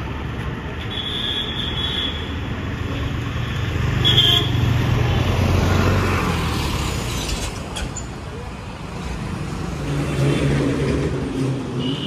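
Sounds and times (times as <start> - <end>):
vehicle engine and road rumble: 0.0 - 12.0.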